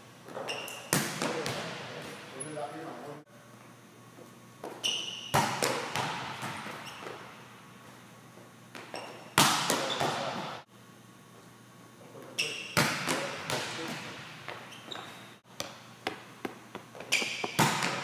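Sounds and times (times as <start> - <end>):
balls bouncing on hard floor: 4.6 - 7.3, 8.7 - 10.6, 12.8 - 18.0.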